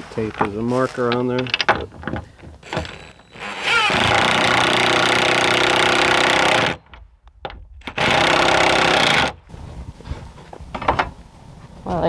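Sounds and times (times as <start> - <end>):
power driver sinking screws into wood: 0.3 - 9.4.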